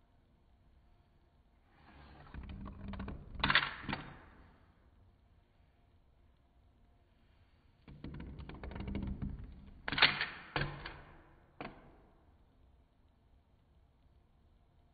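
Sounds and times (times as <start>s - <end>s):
plastic ball rolling on wood: 1.8s - 4.5s, 7.8s - 12.0s.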